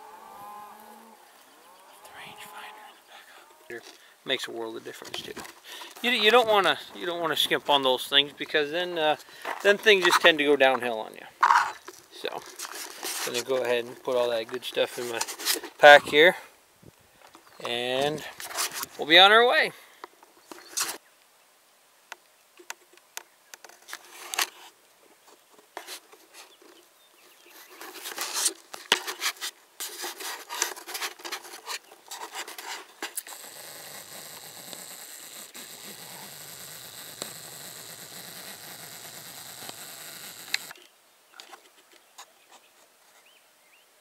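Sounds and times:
camera handling noise: 0:39.6 - 0:41.6.

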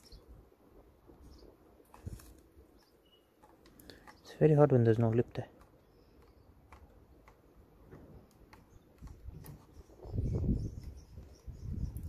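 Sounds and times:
fingernail picking at tape: 0:01.9 - 0:04.3, 0:05.5 - 0:09.9.

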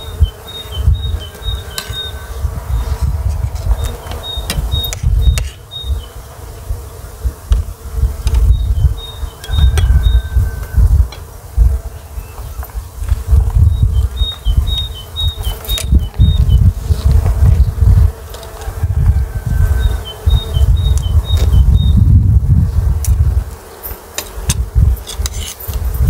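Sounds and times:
flying insect buzzing: 0:00.0 - 0:26.0
gusty low rumble: 0:15.9 - 0:23.5.

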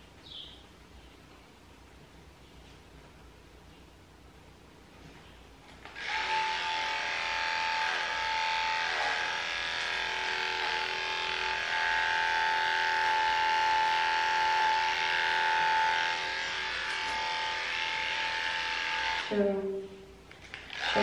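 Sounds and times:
electric clippers humming: 0:05.8 - 0:19.8, 0:20.4 - 0:21.0.

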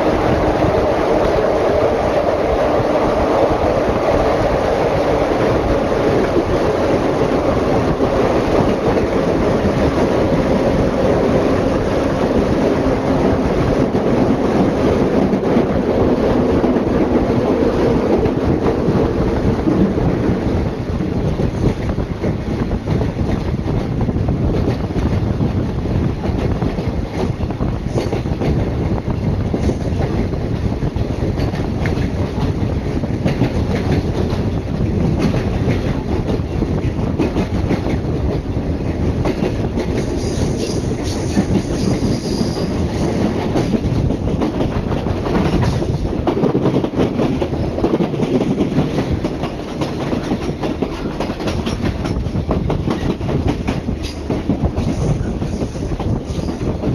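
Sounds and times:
rail joint clicks: 0:00.0 - 0:56.9
rushing air: 0:00.0 - 0:56.9
train wheels rumbling on rail: 0:00.0 - 0:56.9
wheels squealing on rail: 0:40.0 - 0:43.4, 0:54.8 - 0:56.8.

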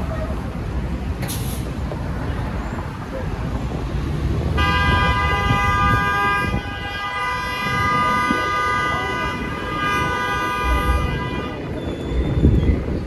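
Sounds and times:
low rumble of street traffic: 0:00.0 - 0:13.0
vehicle horn honking: 0:04.6 - 0:11.8.

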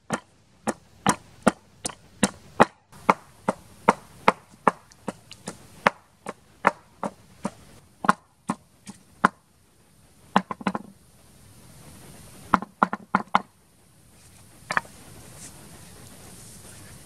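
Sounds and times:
pestle pounding in a mortar: 0:00.0 - 0:09.4, 0:10.4 - 0:10.9, 0:12.5 - 0:13.5
faint background hiss: 0:00.0 - 0:17.0.

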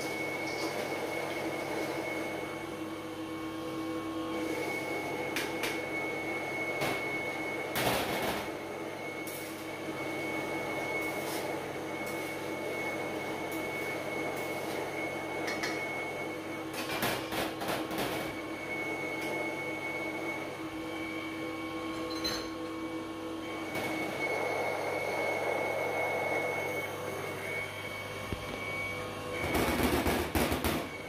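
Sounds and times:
grinding mill motor humming: 0:18.3 - 0:31.0.

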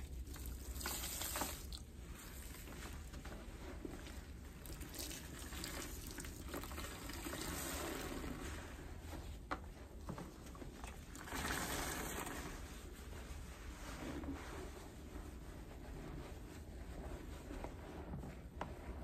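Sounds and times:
water pouring and dripping: 0:00.0 - 0:02.9, 0:04.6 - 0:08.6
sponges squelching: 0:00.0 - 0:09.0.

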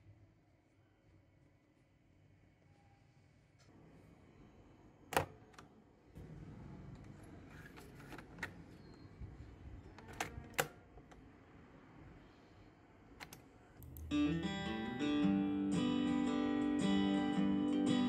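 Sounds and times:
acoustic guitar music: 0:14.0 - 0:18.0.

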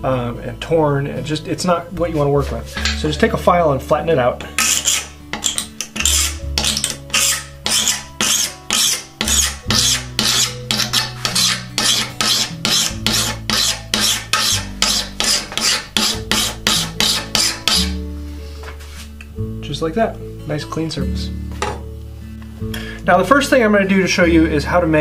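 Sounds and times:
hand file rasping on steel: 0:04.6 - 0:18.0.

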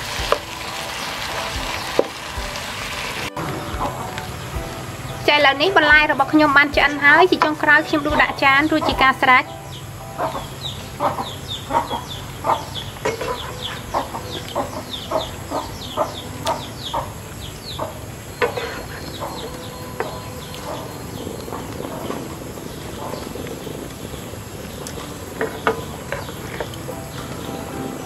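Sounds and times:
bird clucking: 0:10.2 - 0:22.2.

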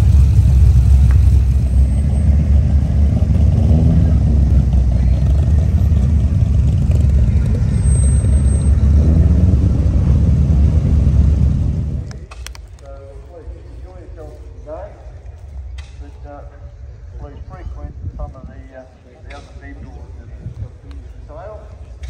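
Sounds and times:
car engines driving past: 0:00.0 - 0:14.1.

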